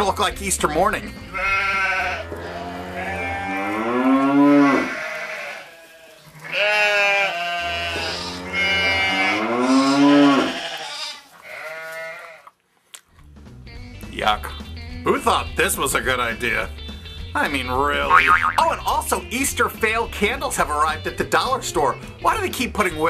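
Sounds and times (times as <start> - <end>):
wavering bleats: 1.0 - 12.5, 18.0 - 18.7.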